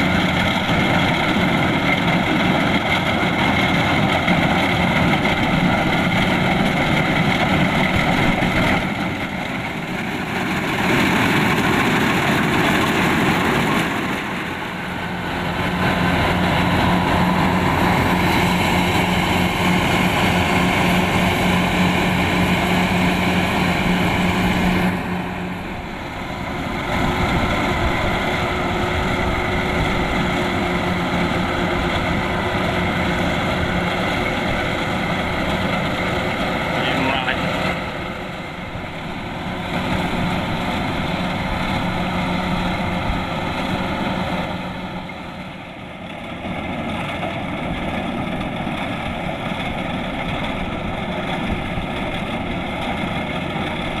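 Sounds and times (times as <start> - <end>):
combine harvester engine: 0.0 - 54.0.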